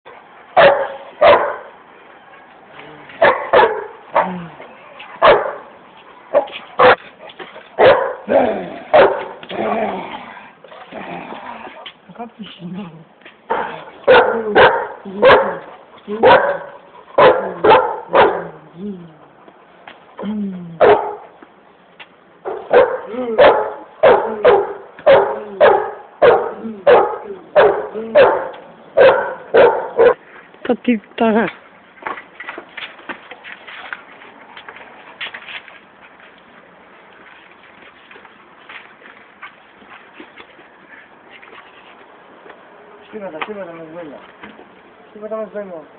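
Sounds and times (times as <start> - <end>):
dog barking: 0.6 - 1.7, 3.2 - 4.4, 5.2 - 5.7, 6.3 - 7.0, 7.8 - 8.3, 8.9 - 9.4, 13.5 - 18.6, 20.8 - 21.3, 22.4 - 30.2.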